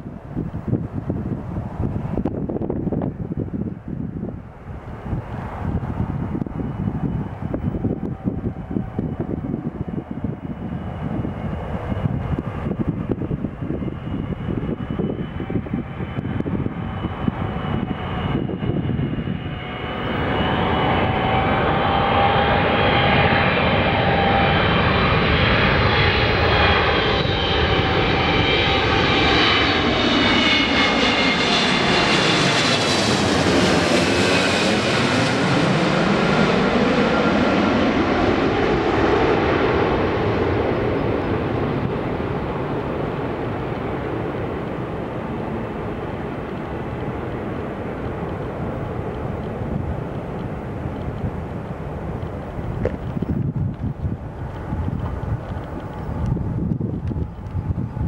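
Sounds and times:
jet airliner flying overhead: 0.0 - 58.0.

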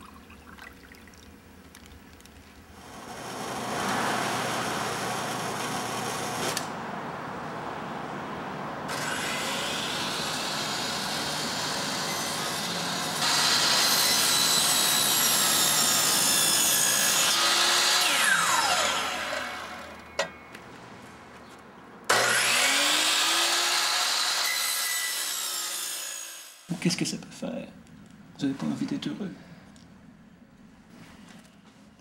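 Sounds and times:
miter saw running and cutting: 2.8 - 6.7, 8.9 - 20.1, 22.1 - 26.7.

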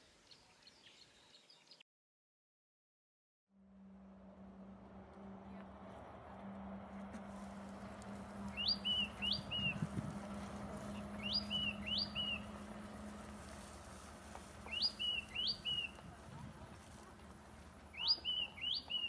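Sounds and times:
bird whistling calls: 8.5 - 9.8, 11.2 - 12.5, 14.7 - 16.0, 17.9 - 19.0.

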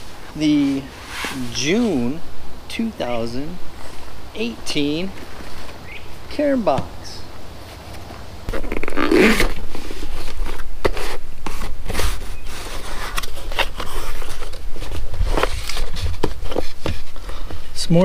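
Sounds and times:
paper packing rustling: 7.7 - 17.8
cardboard box being opened: 8.5 - 17.5.

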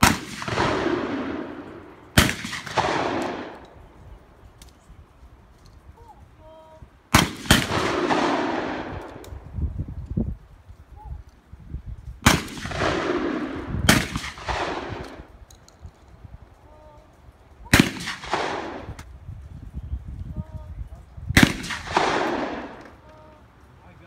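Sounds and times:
shotgun shots with echo: 0.0 - 3.7, 7.1 - 9.2, 12.2 - 15.3, 17.7 - 19.0, 21.4 - 22.8.

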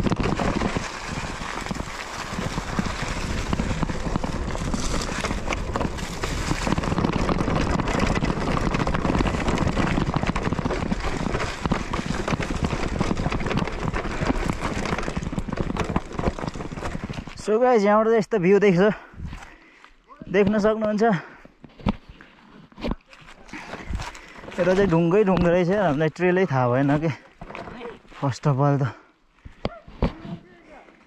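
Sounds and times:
bike rattling and knocking: 0.0 - 19.0, 20.3 - 22.1, 22.7 - 28.0
bike tyres rolling on rocks: 0.0 - 31.0.

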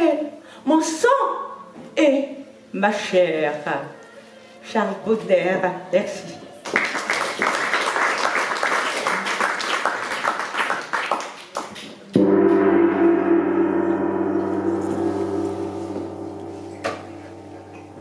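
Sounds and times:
audience applause: 6.7 - 11.8
gong strike ringing: 12.2 - 18.0.

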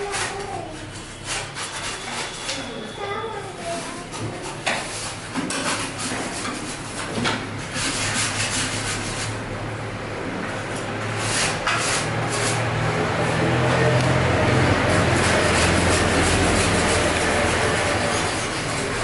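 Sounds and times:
rasping rubbing strokes: 0.0 - 2.8, 3.8 - 9.5, 11.1 - 19.0.

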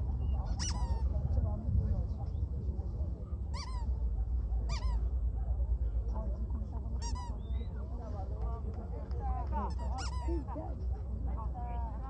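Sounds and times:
background chatter: 0.0 - 12.0
dog yelping: 0.2 - 1.0, 4.6 - 5.0.

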